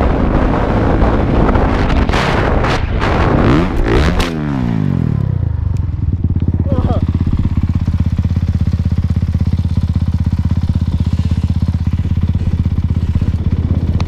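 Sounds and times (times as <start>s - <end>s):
dirt bike engine idling: 3.5s - 14.0s.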